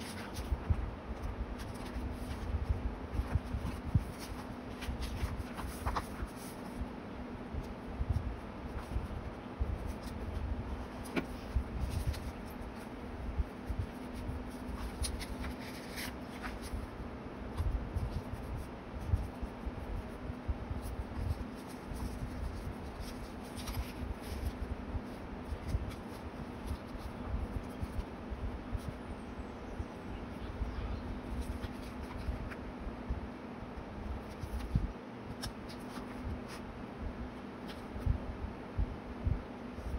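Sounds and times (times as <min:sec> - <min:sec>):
paper rustling and sliding: 0:00.0 - 0:06.9, 0:08.2 - 0:13.0, 0:13.6 - 0:16.9, 0:20.8 - 0:28.0, 0:31.3 - 0:32.6, 0:34.2 - 0:36.6
faint steady hum: 0:00.0 - 0:39.9.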